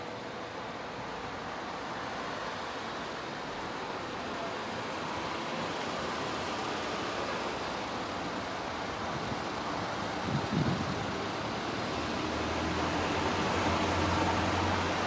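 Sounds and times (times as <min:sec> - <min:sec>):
wind on microphone: 0:10.1 - 0:11.2.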